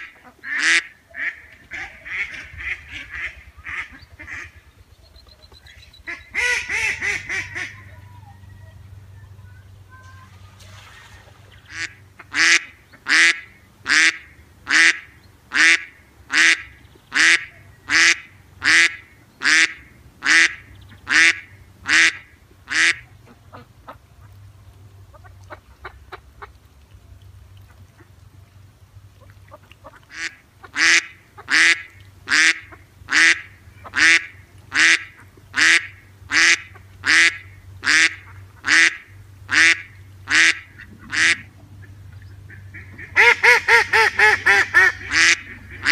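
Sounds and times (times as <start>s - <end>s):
duck quacking: 0.0s - 4.6s, 6.0s - 8.0s, 11.6s - 24.0s, 29.6s - 45.9s
faint low hum: 0.3s - 45.9s.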